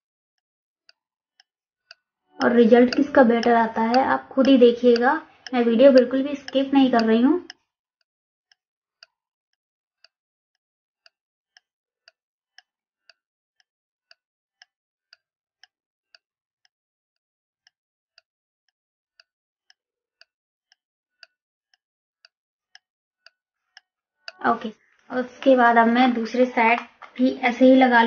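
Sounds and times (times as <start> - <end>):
clock ticking: 2.3 - 7.6, 24.3 - 28.0.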